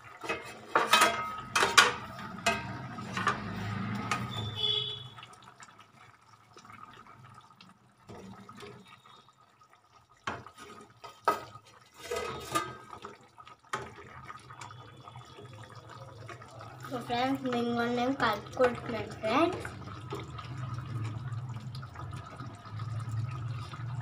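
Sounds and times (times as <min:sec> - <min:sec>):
spatula stirring curry in pan: 0:00.0 - 0:04.6, 0:10.2 - 0:13.2.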